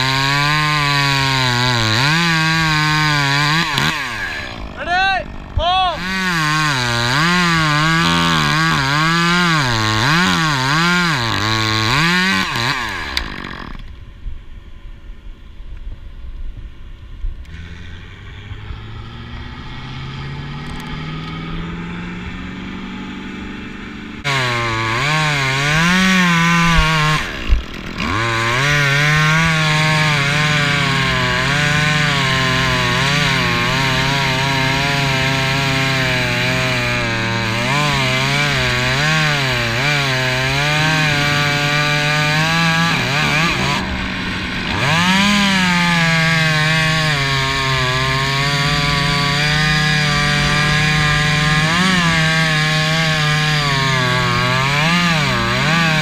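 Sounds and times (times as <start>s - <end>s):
chainsaw cutting wood: 0.0s - 14.0s, 17.4s - 56.0s.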